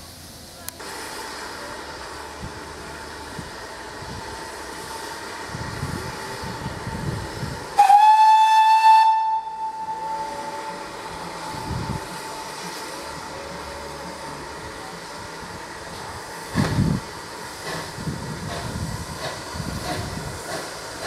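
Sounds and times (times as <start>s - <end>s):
steady steam hiss: 0.0s - 21.0s
steam locomotive whistle blast: 7.8s - 10.8s.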